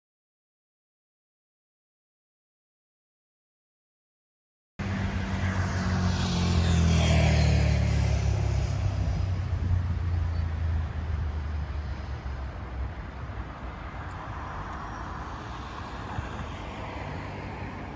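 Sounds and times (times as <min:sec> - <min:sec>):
low traffic rumble: 0:04.8 - 0:17.9
vehicle passing by: 0:04.8 - 0:17.9.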